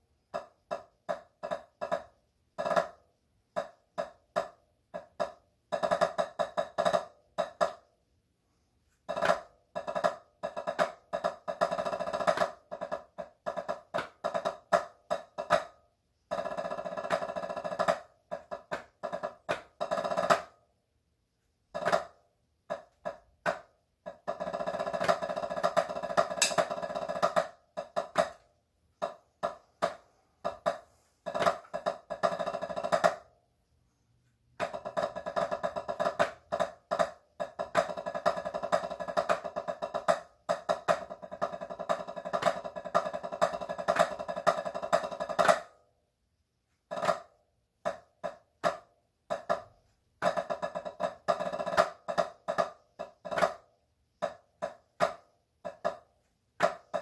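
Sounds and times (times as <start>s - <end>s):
drumsticks on practice pad: 24.4s - 28.4s.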